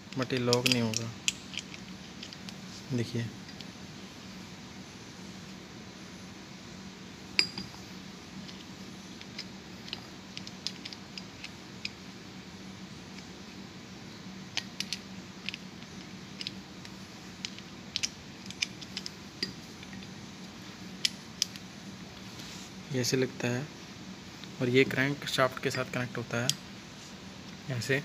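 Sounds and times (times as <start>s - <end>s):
steady low hum: 0.0s - 28.0s
metal parts clicking and clinking: 0.1s - 2.6s, 3.4s - 3.8s, 7.4s - 7.8s, 8.4s - 12.0s, 14.5s - 20.1s, 21.0s - 21.7s.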